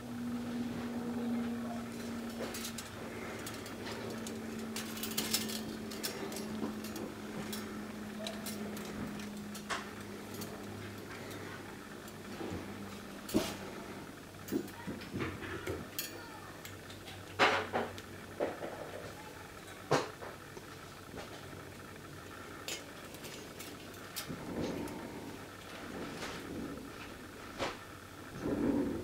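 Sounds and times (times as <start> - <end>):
metal strips clinking: 1.8 - 13.6, 22.6 - 25.7.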